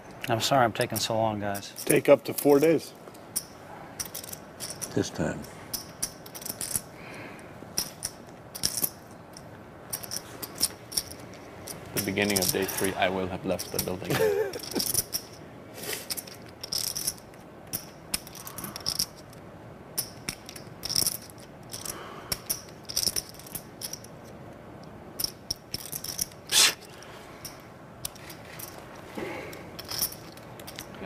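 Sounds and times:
poker chips clicking: 13.6 - 19.3, 20.0 - 24.1, 25.2 - 28.8, 29.8 - 31.0.

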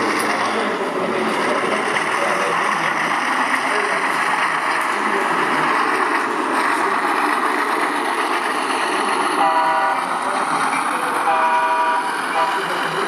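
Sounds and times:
locomotive chord horn blasts: 9.4 - 10.1, 11.2 - 12.8.

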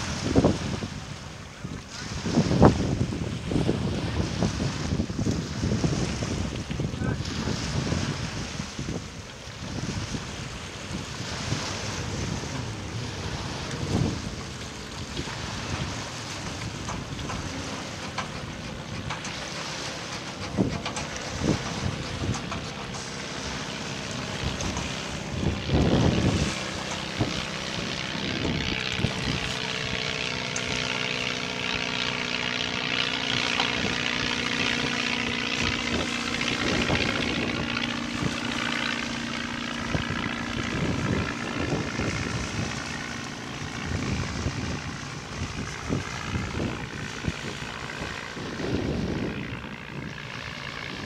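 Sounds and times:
distant engine drone: 0.0 - 51.0.

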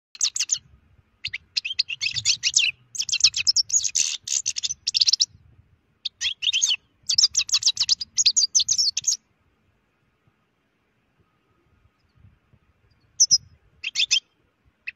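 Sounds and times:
finch singing: 0.2 - 5.4, 6.0 - 9.2, 12.0 - 14.9.

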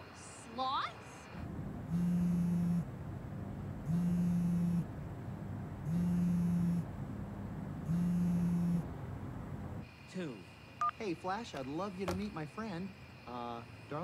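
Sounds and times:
phone vibrating on mattress: 1.9 - 2.9, 3.9 - 4.9, 5.8 - 6.9, 7.8 - 8.9.

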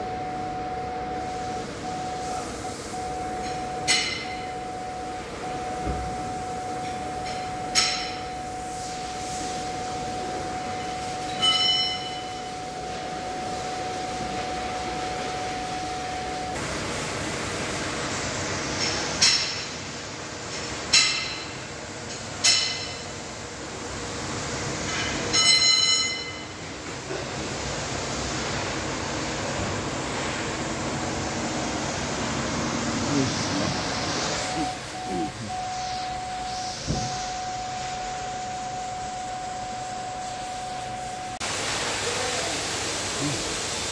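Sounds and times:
steady high tone: 0.0 - 16.6, 30.6 - 41.4.

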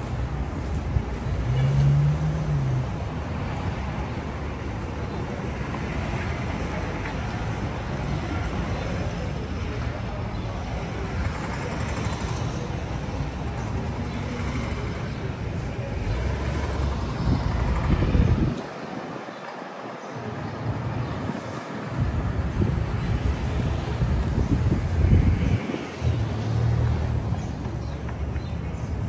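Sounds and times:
low vehicle rumble: 0.0 - 18.6
people's voices: 0.0 - 29.0
traffic noise: 0.0 - 29.0.

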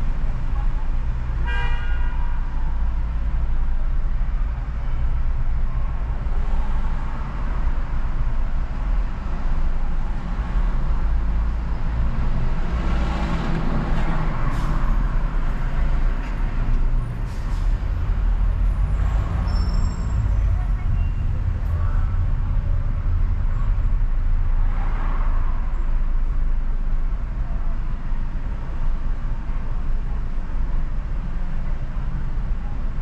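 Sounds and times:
car road and engine rumble: 0.0 - 33.0
vehicle horn toot: 1.4 - 2.3.

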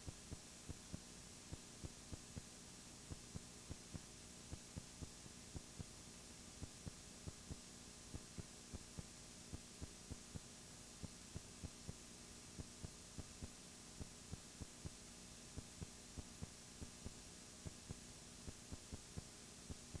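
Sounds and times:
faint electrical hum and hiss: 0.0 - 20.0.

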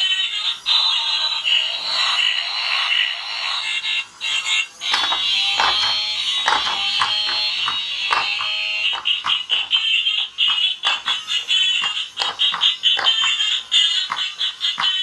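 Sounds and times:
tinny toy siren tune: 0.0 - 15.0
plastic knocks: 4.9 - 11.2.

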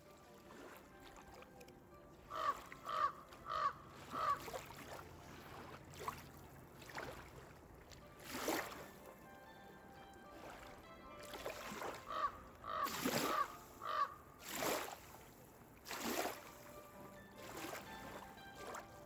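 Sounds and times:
crow cawing: 2.3 - 4.5, 12.1 - 14.2.

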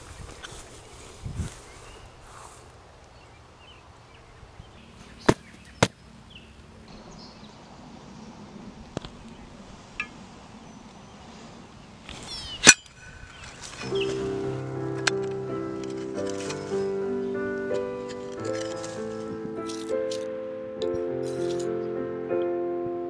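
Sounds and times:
garden tool striking: 12.5 - 17.0, 17.8 - 20.2.

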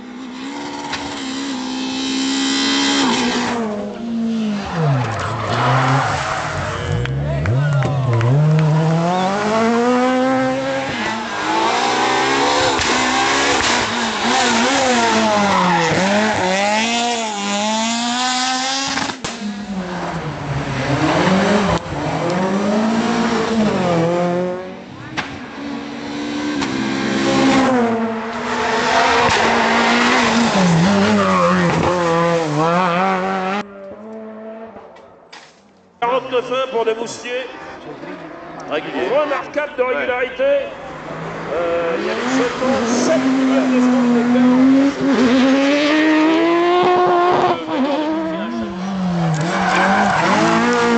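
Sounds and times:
rally car engines revving: 0.0 - 35.3, 36.1 - 50.9.

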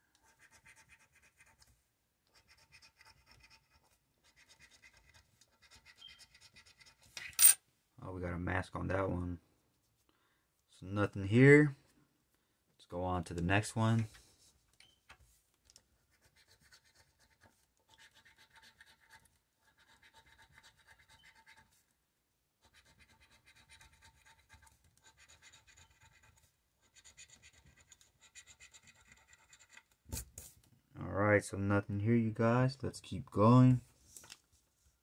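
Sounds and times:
coin scratching a ticket: 2.3 - 7.6, 16.1 - 21.7, 22.6 - 29.9.

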